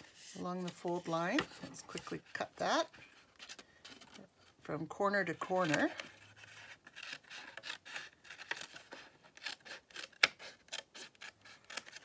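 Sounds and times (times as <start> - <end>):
scissors snipping paper: 7.0 - 12.0.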